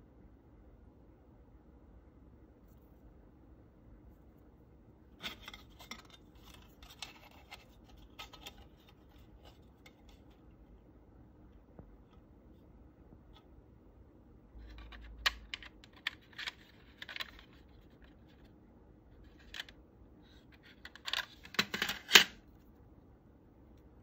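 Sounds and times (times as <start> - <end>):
plastic parts clicking and scraping: 5.2 - 10.4, 14.6 - 18.5, 19.2 - 22.4.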